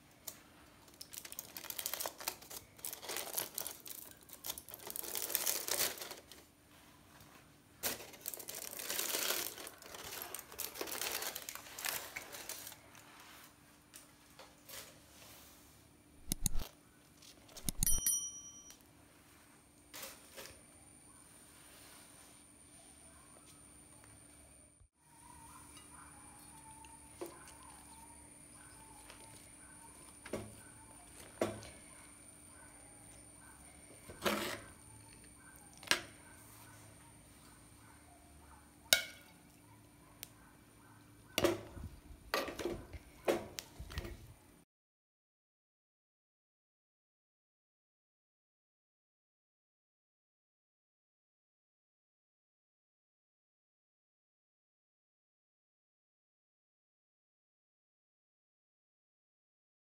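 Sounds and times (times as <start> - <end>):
quick clicks: 16.2 - 16.7, 17.5 - 18.0
short bright bell ding: 17.8 - 18.8.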